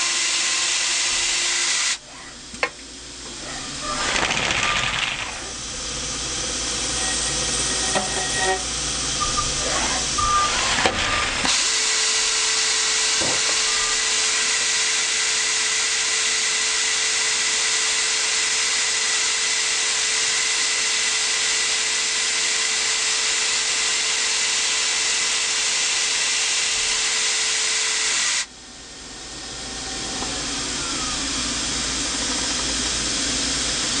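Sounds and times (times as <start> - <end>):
machine whine: 0.0 - 34.0
grinding wheel hissing: 3.1 - 19.9.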